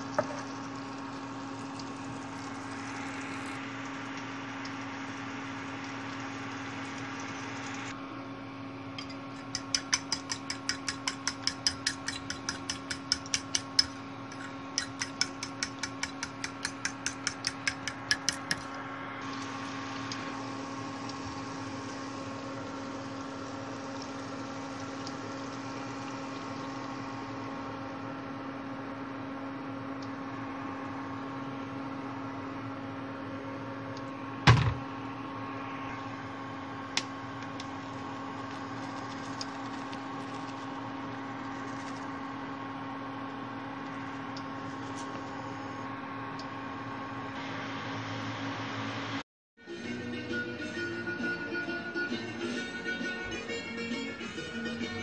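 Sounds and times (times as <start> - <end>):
asparagus frying in a pan: 0.0 - 7.9, 16.7 - 27.3
steady hum: 0.0 - 49.2.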